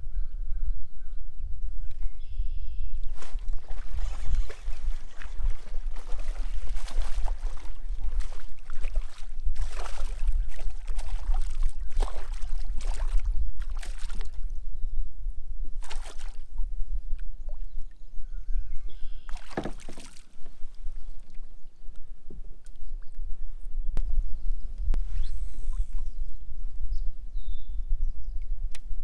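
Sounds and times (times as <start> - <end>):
fish splashing at surface: 3.2 - 14.4, 15.8 - 16.4, 19.3 - 20.2.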